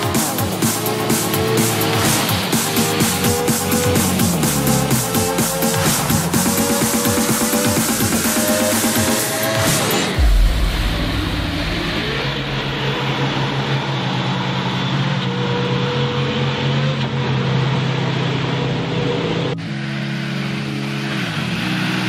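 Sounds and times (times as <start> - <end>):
off-road engines droning: 11.5 - 22.0.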